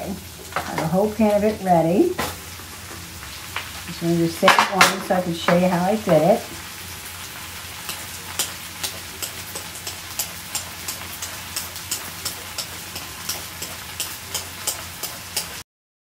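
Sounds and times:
butter sizzling in a skillet: 0.0s - 15.6s
vegetable peeler ticking: 7.8s - 15.6s.

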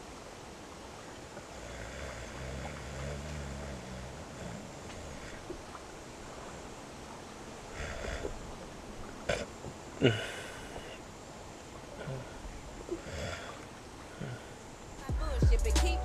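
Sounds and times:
steady background hiss: 0.0s - 16.0s
man snoring: 1.5s - 5.4s, 7.8s - 8.3s.

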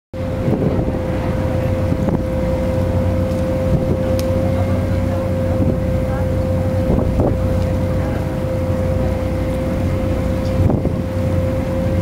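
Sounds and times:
ferry engine drone: 0.2s - 12.0s
steady high humming tone: 0.2s - 12.0s.

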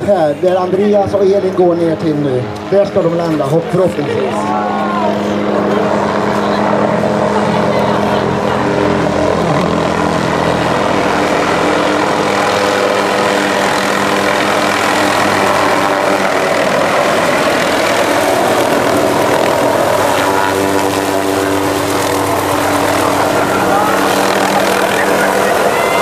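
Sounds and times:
helicopter rotor and engine: 0.0s - 26.0s.

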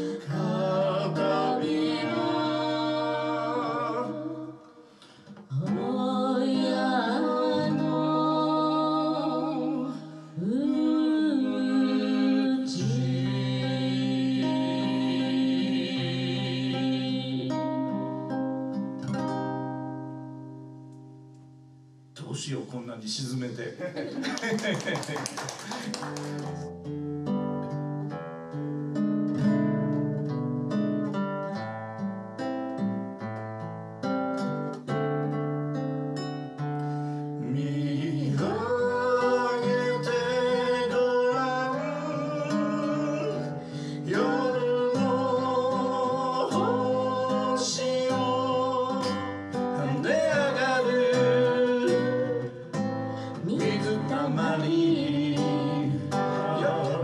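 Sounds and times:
person singing: 0.0s - 18.1s, 37.4s - 57.0s
acoustic guitar picking: 0.0s - 22.2s, 25.7s - 57.0s.

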